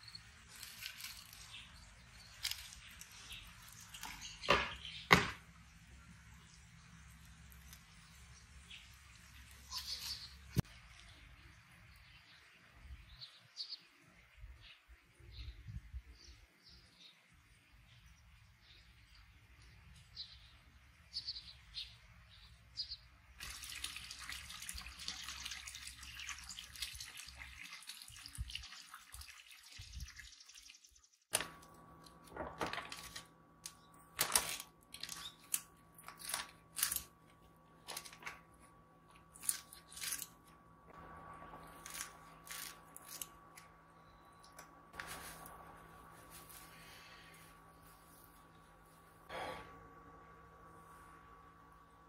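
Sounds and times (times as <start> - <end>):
faint electrical hum: 0.0 - 29.2, 31.3 - 52.0
birds chirping: 1.2 - 23.2
running water trickling: 23.4 - 31.2.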